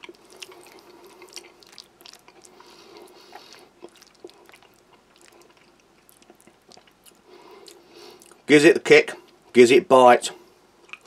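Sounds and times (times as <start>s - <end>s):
wet squelches of pasta: 0.0s - 8.5s.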